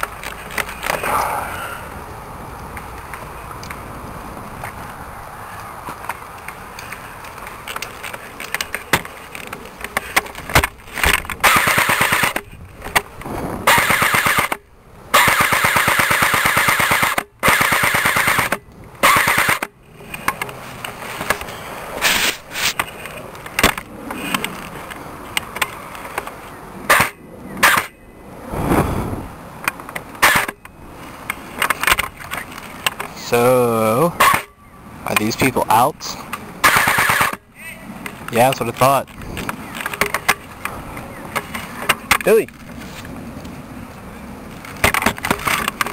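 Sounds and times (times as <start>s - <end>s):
airsoft gun firing bursts: 11.4s - 12.4s, 13.7s - 14.6s, 15.2s - 19.6s, 36.6s - 37.4s.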